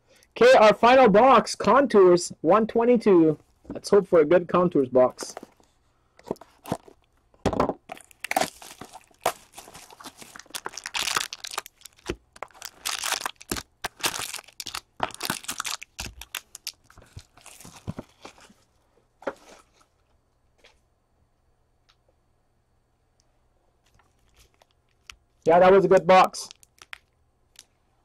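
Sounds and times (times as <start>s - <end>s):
plastic wrap crinkling and tearing: 7.9s - 18.6s, 26.5s - 27.1s.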